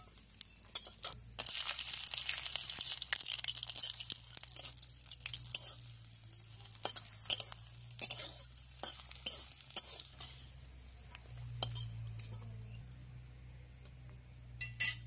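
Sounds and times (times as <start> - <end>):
vegetables sizzling in oil: 0.0 - 12.2
spatula scraping metal pan: 4.5 - 6.0, 6.7 - 10.6.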